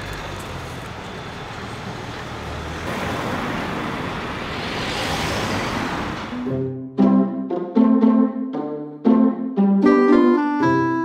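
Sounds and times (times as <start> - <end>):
vehicle passing close by: 0.0 - 6.5
street traffic: 0.0 - 8.8.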